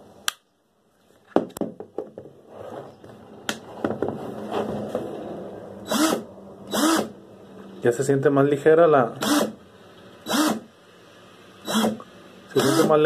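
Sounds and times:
cordless drill whining: 0:05.8 - 0:07.2, 0:09.2 - 0:09.6, 0:10.2 - 0:10.7, 0:11.6 - 0:13.0.

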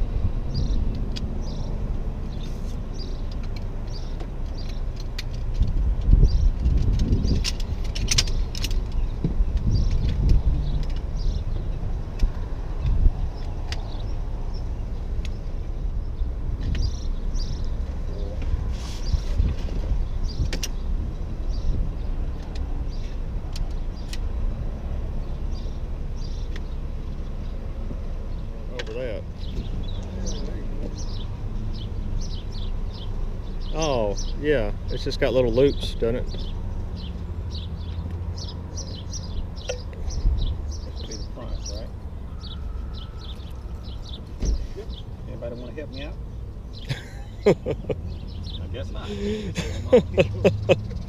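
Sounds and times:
chair poles clicking and rattling: 0:03.2 - 0:11.1.

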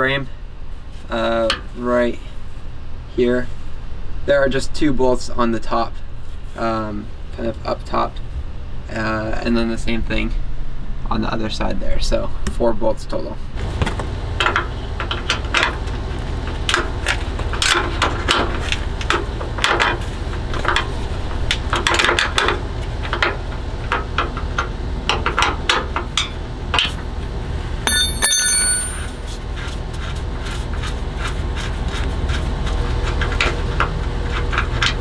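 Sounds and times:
low hum: 0:13.3 - 0:35.0
sharp ringing metal clink: 0:27.8 - 0:29.2.

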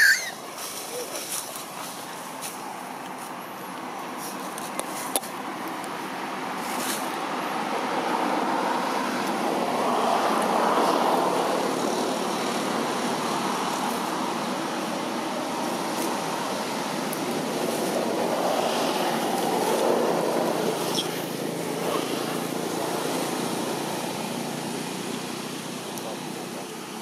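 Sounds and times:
road traffic noise: 0:00.0 - 0:27.0.

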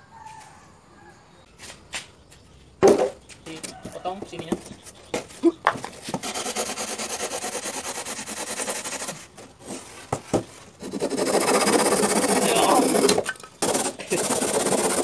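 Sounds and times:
hacksaw sawing styrofoam: 0:06.0 - 0:15.0.

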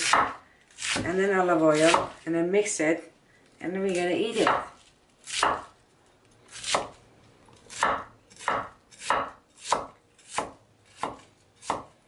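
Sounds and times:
knife slicing cabbage on wooden board: 0:00.0 - 0:02.2, 0:04.3 - 0:05.7, 0:06.5 - 0:07.0, 0:07.6 - 0:12.0.

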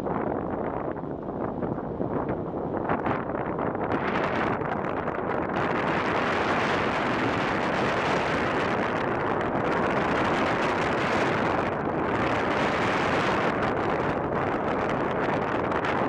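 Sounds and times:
wind rushing over microphone: 0:00.0 - 0:16.0.

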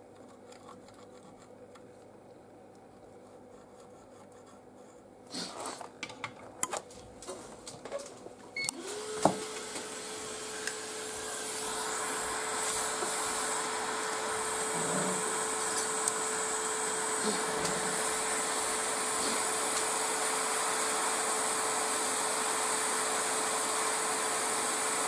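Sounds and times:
fan whine: 0:05.1 - 0:25.0
rush of hot air: 0:08.8 - 0:25.0.

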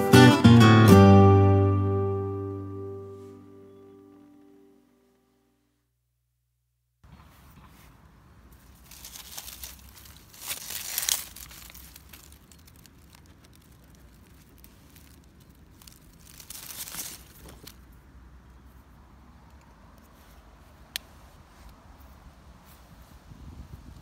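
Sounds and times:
leaves and stems rustling: 0:07.2 - 0:23.3.

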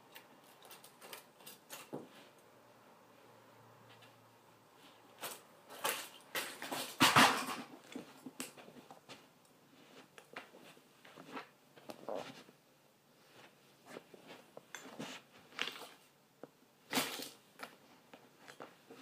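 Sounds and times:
plastic toy cars clattering: 0:05.2 - 0:08.0, 0:16.9 - 0:17.4.

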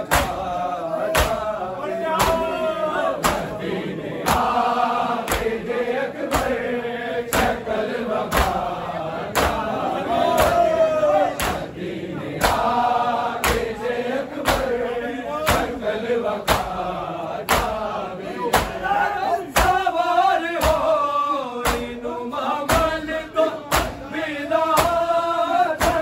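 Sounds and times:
chest beating slaps: 0:00.0 - 0:02.6, 0:03.2 - 0:05.7, 0:06.3 - 0:06.7, 0:07.3 - 0:11.8, 0:12.4 - 0:13.8, 0:14.4 - 0:14.8, 0:15.4 - 0:15.8, 0:16.4 - 0:16.8, 0:17.4 - 0:18.9, 0:19.5 - 0:19.9, 0:20.6 - 0:21.0, 0:21.6 - 0:22.0, 0:23.7 - 0:24.1, 0:25.8 - 0:26.0
men chanting together: 0:00.0 - 0:26.0.

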